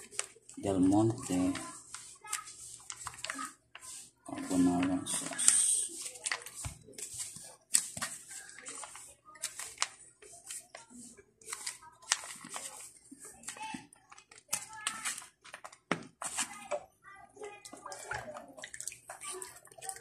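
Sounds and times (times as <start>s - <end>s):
plastic pouch crinkling: 0.0s - 10.9s, 11.5s - 16.6s
child's voice: 1.1s - 5.6s, 10.4s - 15.3s, 16.3s - 20.0s.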